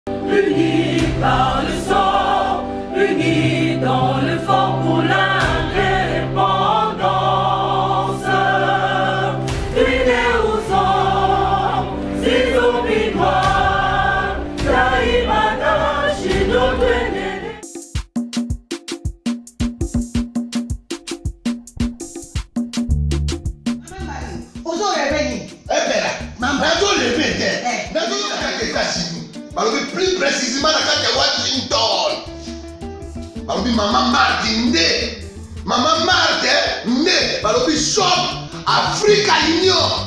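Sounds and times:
voices singing a melody: 0:00.1 - 0:17.7.

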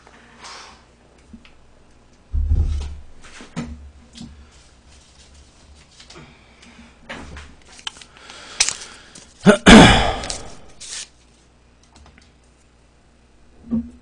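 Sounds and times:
loud thump: 0:02.3 - 0:03.1.

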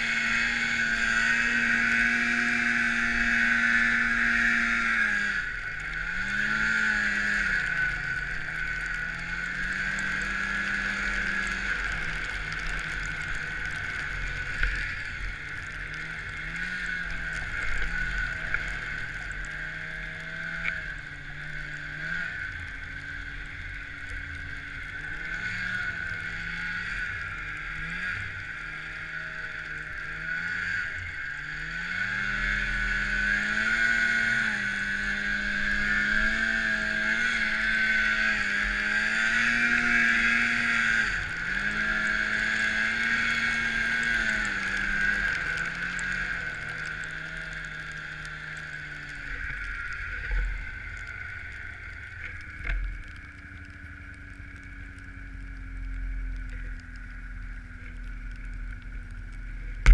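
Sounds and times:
snowmobile engine revving: 0:00.0 - 0:52.6.

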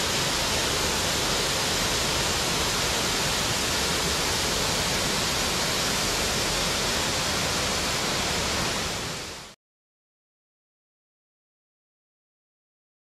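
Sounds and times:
torrent water rushing: 0:00.0 - 0:09.6.

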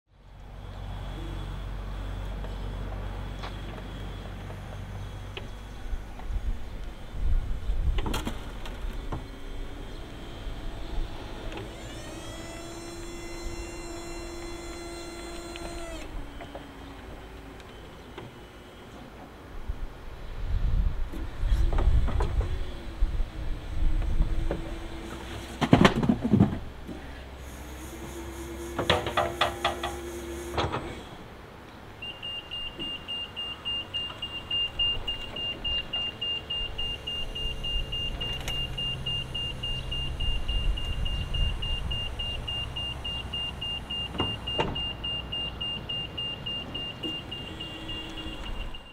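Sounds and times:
hydraulic pump humming: 0:08.1 - 0:19.1, 0:26.8 - 0:31.3
forklift warning beeper: 0:32.0 - 0:48.9.

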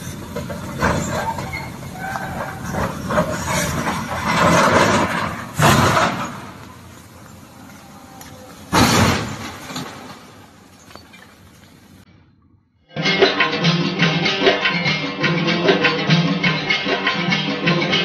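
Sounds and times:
excavator crashing: 0:00.0 - 0:12.0
rumble of tumbling rock: 0:00.0 - 0:12.0.

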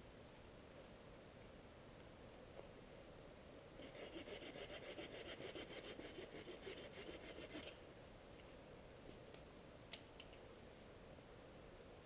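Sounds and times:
rapid scraping on wood: 0:03.8 - 0:07.8.

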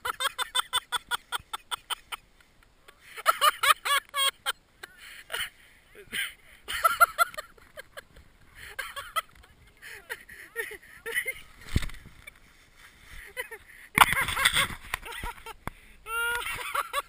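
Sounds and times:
person laughing hard: 0:03.2 - 0:08.0, 0:08.6 - 0:11.6, 0:13.2 - 0:17.0.

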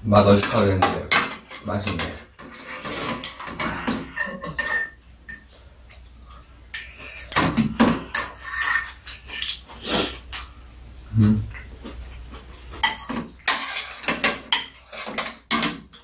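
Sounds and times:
utensils clinking on ceramic bowls: 0:00.1 - 0:05.6, 0:06.3 - 0:09.6, 0:12.5 - 0:16.0.

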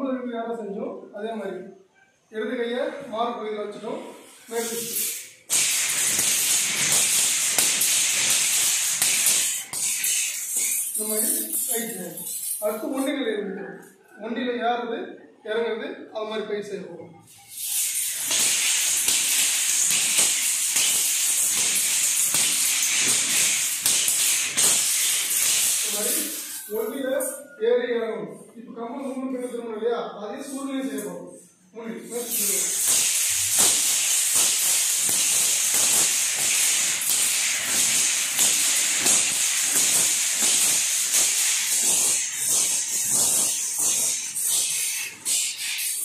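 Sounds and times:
steady hiss: 0:04.0 - 0:12.9, 0:17.4 - 0:27.3, 0:32.0 - 0:46.0.

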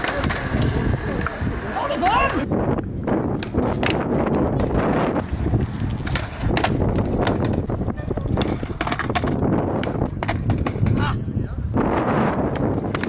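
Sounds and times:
skateboard clacking on concrete: 0:00.0 - 0:01.4, 0:03.3 - 0:11.2, 0:12.5 - 0:13.0
strong wind buffeting microphone: 0:00.1 - 0:13.0.

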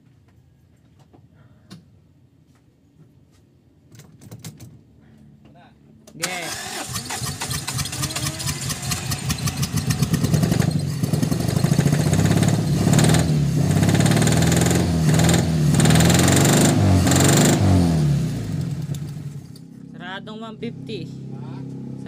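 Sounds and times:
engine cranked by starter: 0:06.2 - 0:19.7
engine running unevenly: 0:06.5 - 0:19.9.

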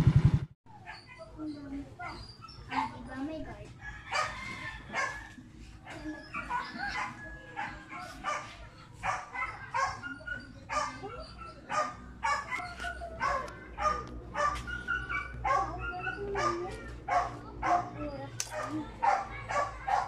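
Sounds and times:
dog barking: 0:04.0 - 0:20.0.

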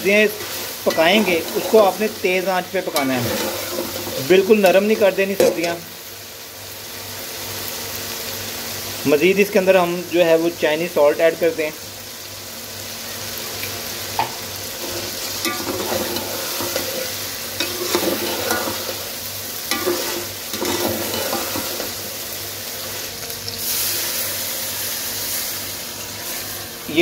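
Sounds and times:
food sizzling in a pan: 0:00.0 - 0:27.0
spoon scraping and stirring: 0:00.4 - 0:02.0, 0:14.8 - 0:19.1, 0:19.7 - 0:22.0.

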